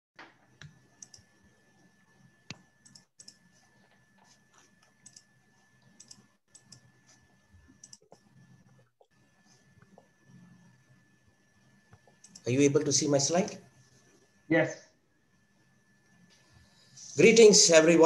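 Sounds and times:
computer clicks: 0.2s - 1.5s, 2.4s - 9.2s, 11.9s - 12.6s.

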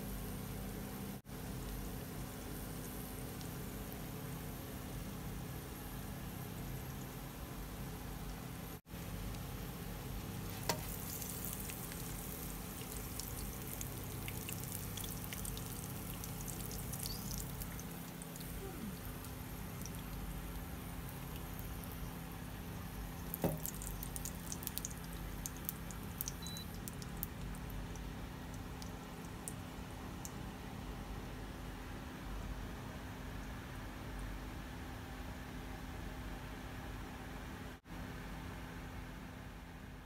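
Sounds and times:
steady low hum: 0.0s - 40.0s
hot oil crackling and sizzling: 1.4s - 29.6s.

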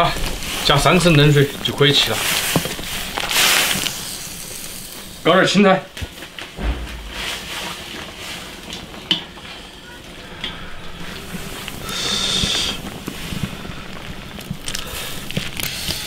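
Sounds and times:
water boiling in a wok: 0.0s - 5.3s, 11.2s - 16.0s.

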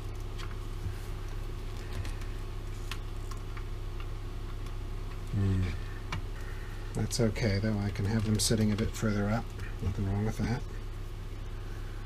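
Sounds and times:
low hum: 0.0s - 12.0s
light rustling of wiring: 6.0s - 10.8s.

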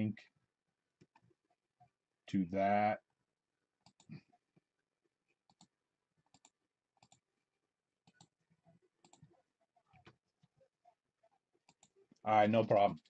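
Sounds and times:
computer mouse clicks: 3.8s - 4.2s, 5.4s - 7.3s, 8.0s - 8.4s, 9.0s - 9.3s, 11.6s - 12.0s.

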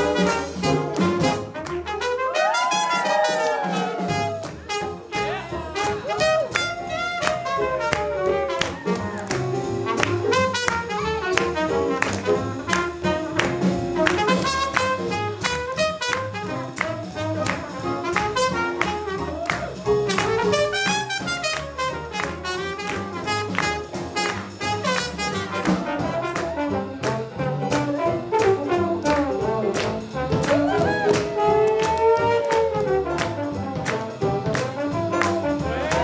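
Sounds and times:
swing jazz band playing: 0.0s - 36.0s
horn sliding down in pitch: 2.4s - 4.9s.

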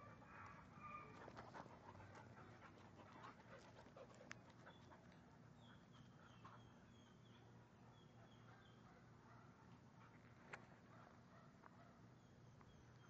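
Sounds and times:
dogs panting: 0.1s - 6.8s.

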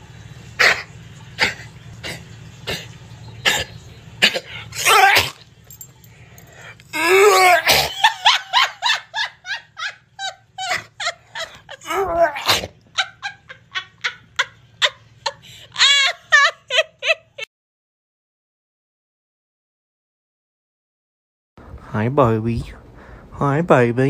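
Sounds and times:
dog huffing coughs: 0.6s - 5.4s
person laughing: 7.0s - 17.5s.

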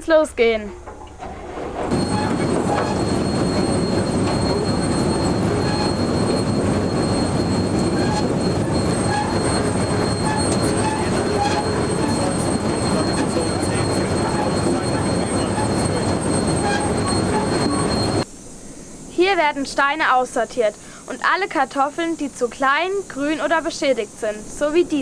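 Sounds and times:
harvester machinery rattling: 0.7s - 18.2s
high machine whine: 0.8s - 20.2s.

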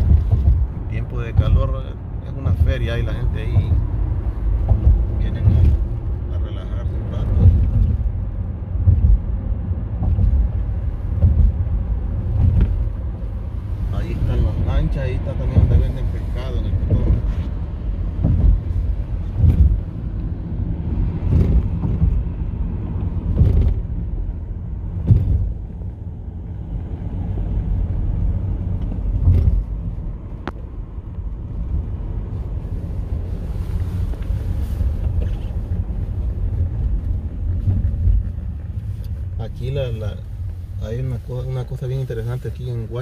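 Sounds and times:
dull thumps over bumps: 0.0s - 1.9s, 2.5s - 6.2s, 7.2s - 13.2s, 15.4s - 25.9s, 27.8s - 31.7s
car road rumble from inside: 0.0s - 43.0s.

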